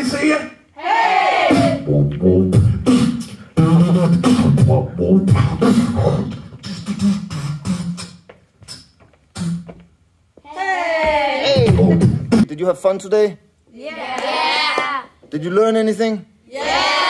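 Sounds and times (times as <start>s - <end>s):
beatboxing into microphone: 1.5s - 10.0s, 11.4s - 12.5s.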